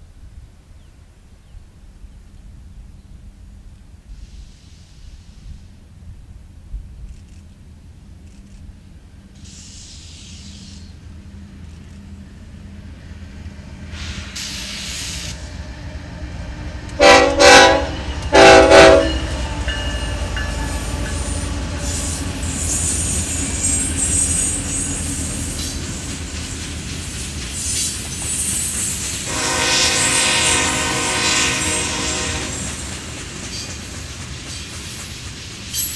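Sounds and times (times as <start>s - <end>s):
freight train rumble: 1.4s - 35.9s
rail cars clattering: 9.3s - 35.9s
train horn blasts: 17.0s - 22.2s, 29.2s - 32.9s.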